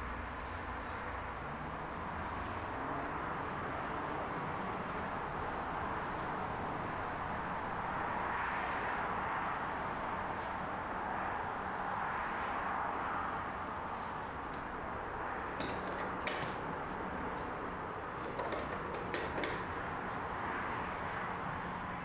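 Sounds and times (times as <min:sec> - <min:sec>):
city ambience hum: 0:00.0 - 0:22.0
window clicks and knocks: 0:15.6 - 0:16.7, 0:18.1 - 0:20.0.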